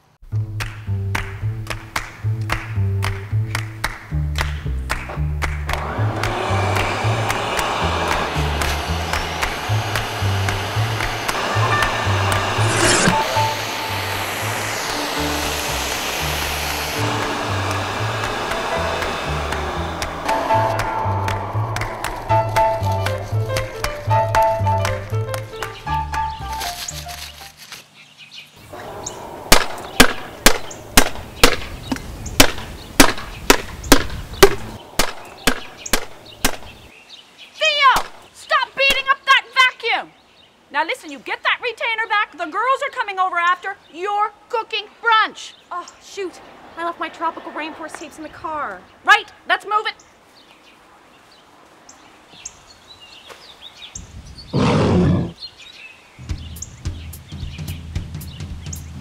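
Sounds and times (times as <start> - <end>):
low rumble: 5.3 - 25.2, 28.6 - 32.2, 33.7 - 36.9
steady rushing noise: 5.4 - 25.8, 28.6 - 36.9
loud rough burst of noise: 5.6 - 24.7, 28.6 - 36.9
small birds chirping: 25.5 - 42.8, 43.4 - 59.0
sharp knocks: 29.5 - 36.7.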